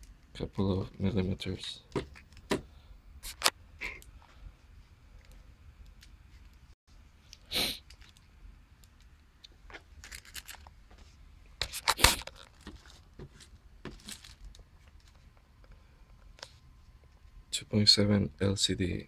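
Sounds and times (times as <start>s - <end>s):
plastic bag crinkling: 10.0s - 10.7s, 11.7s - 15.2s.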